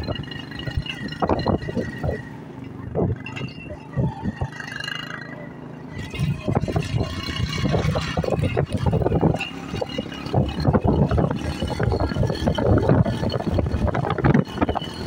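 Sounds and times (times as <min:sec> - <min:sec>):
wind buffeting microphone: 0:00.0 - 0:04.7, 0:06.0 - 0:15.0
low rumble: 0:05.9 - 0:14.9.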